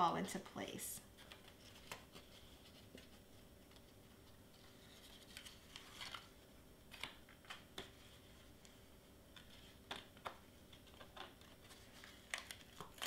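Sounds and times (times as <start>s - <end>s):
cardstock crinkling: 4.6s - 8.2s, 9.4s - 13.0s.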